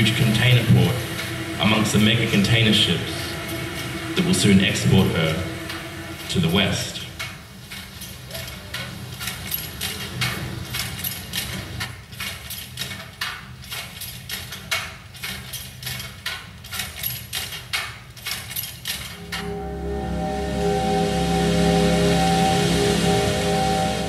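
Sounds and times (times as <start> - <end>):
low steady drone: 0.0 - 9.7, 19.1 - 24.0.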